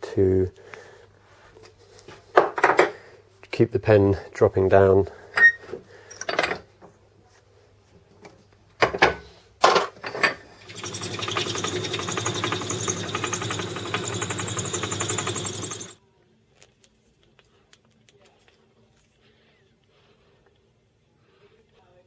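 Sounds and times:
drill boring through metal: 10.6s - 16.0s
lathe running with high whine: 10.6s - 16.0s.

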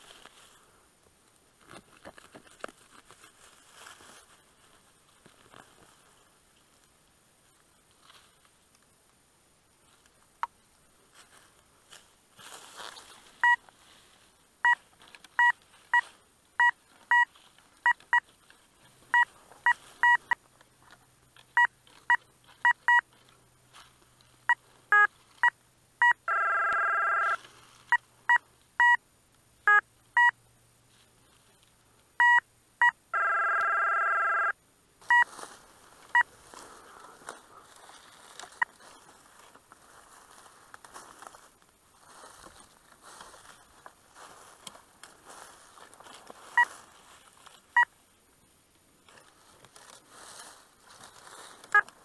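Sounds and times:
leaves and soil rustling: 0.0s - 25.6s, 27.3s - 28.6s, 30.9s - 32.1s, 35.0s - 52.0s
metal detector steady tone: 13.4s - 13.6s, 14.6s - 18.3s, 19.1s - 20.4s, 21.4s - 23.3s, 24.4s - 29.0s, 32.2s - 35.3s
metal detector short beeps: 19.1s - 20.4s, 26.0s - 28.0s, 32.2s - 34.5s, 35.1s - 35.3s.

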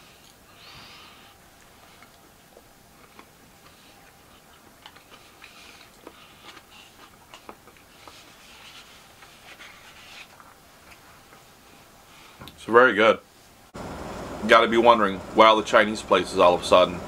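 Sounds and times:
chewing and mouth noises: 1.5s - 9.4s.

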